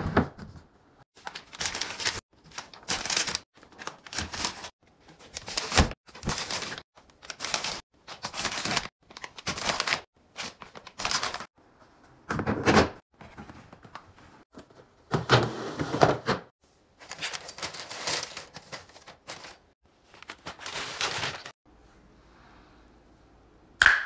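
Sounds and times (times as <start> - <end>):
plastic packs rustling and clicking: 1.2 - 11.5, 17.0 - 21.6
plastic basket scraping on shelf: 15.1 - 16.5.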